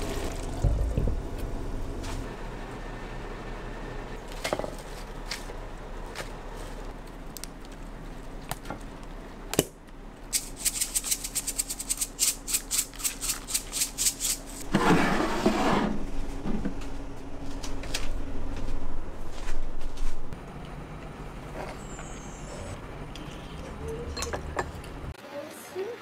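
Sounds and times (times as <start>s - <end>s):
rustling noise: 10.3s - 20.4s.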